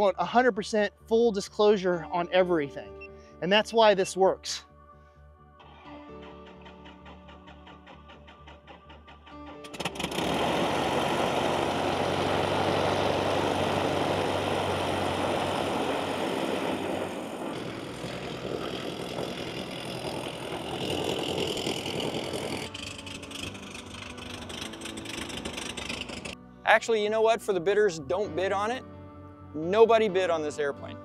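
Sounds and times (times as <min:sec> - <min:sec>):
light airplane engine and propeller: 0:06.2 - 0:26.4.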